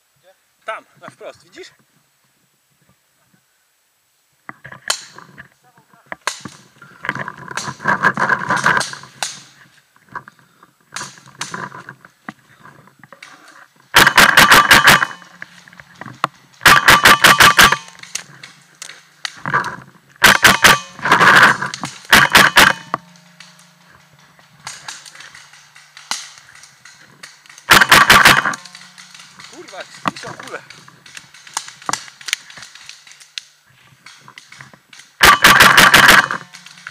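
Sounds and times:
paintball markers firing: 0:24.6 - 0:33.4.

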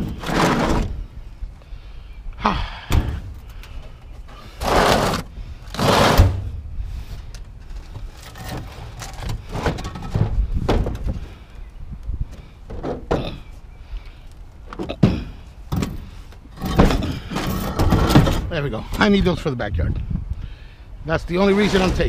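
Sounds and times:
heavy scrap scraping and thunking: 0:00.0 - 0:01.2, 0:02.9 - 0:11.4, 0:14.8 - 0:19.2, 0:21.3 - 0:22.0.

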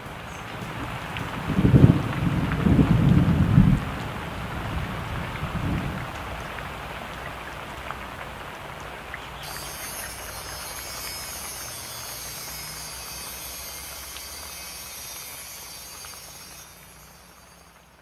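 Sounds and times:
steady hiss: 0:09.3 - 0:18.0.

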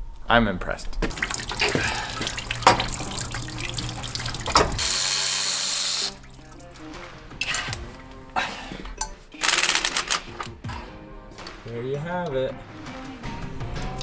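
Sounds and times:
background music: 0:01.0 - 0:14.0
tool handling knocks: 0:02.6 - 0:03.0, 0:04.5 - 0:04.8
impact wrench rattling: 0:09.4 - 0:10.5.

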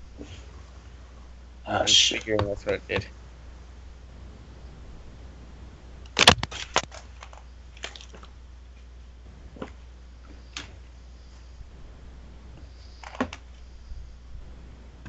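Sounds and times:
steady low hum: 0:00.0 - 0:15.0
sharp clicks and knocks: 0:06.1 - 0:07.4.

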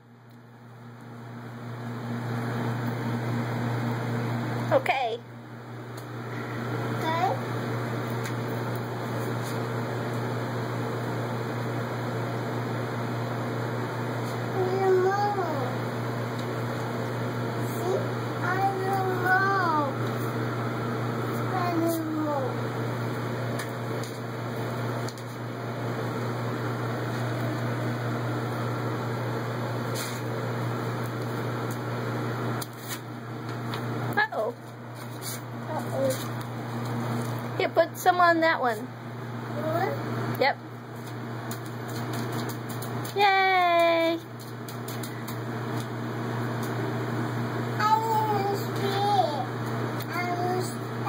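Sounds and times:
mechanical hum with hiss: 0:00.0 - 0:51.0.

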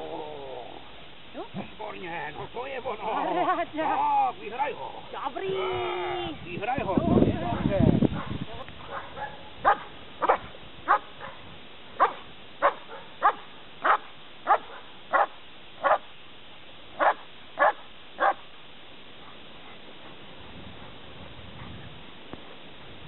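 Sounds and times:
dog barking: 0:07.5 - 0:16.0, 0:17.0 - 0:18.4.

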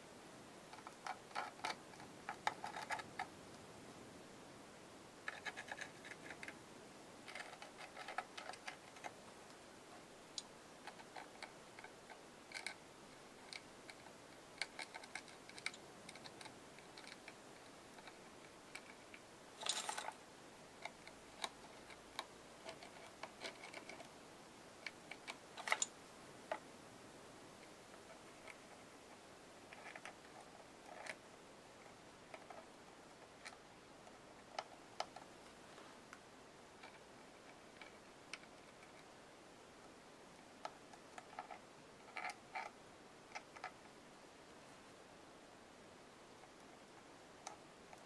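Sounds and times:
crackle: 0:07.2 - 0:12.8, 0:13.4 - 0:20.2.

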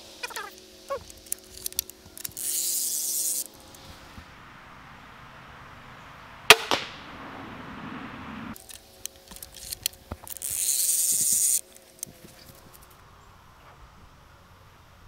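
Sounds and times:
crank whirring: 0:00.0 - 0:04.3, 0:08.5 - 0:13.0
crossbow string snap: 0:06.5 - 0:07.0
bolt striking target: 0:06.5 - 0:07.1.

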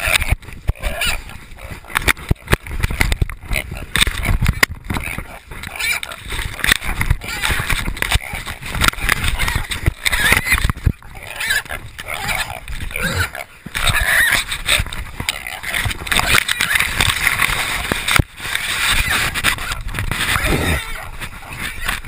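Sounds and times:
young hog squealing: 0:00.0 - 0:01.9, 0:05.0 - 0:06.2, 0:09.2 - 0:14.8, 0:18.8 - 0:22.0
rustling and scraping through brush: 0:00.0 - 0:22.0.

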